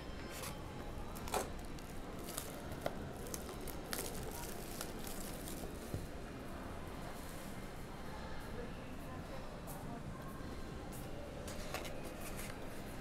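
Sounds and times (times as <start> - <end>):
low background noise: 0.0 - 13.0
plastic wrapping crinkling: 1.2 - 5.8.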